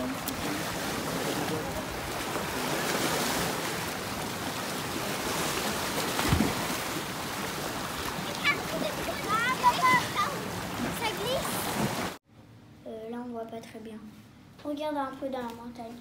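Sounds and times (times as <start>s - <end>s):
rush of moving water: 0.0s - 12.2s.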